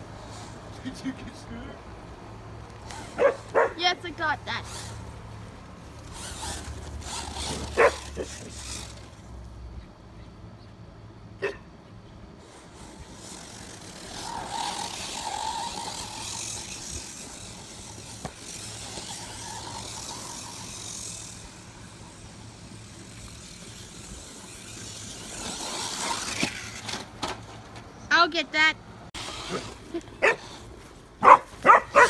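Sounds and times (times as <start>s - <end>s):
toy car motor whining: 2.8s - 3.2s, 4.1s - 5.2s, 5.9s - 9.3s, 12.4s - 27.1s, 29.2s - 30.7s.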